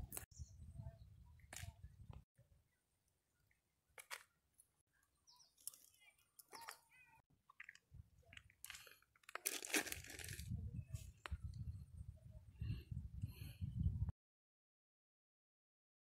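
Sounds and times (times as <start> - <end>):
plastic bag crinkling: 8.6 - 10.5.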